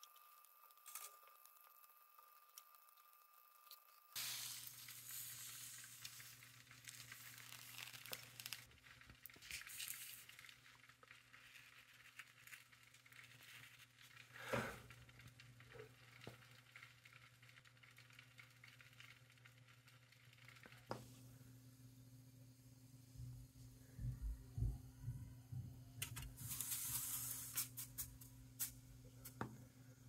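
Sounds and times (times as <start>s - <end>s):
liquid nitrogen hissing and crackling: 0.0s - 21.8s, 26.0s - 30.0s
low steady hum: 0.0s - 30.0s.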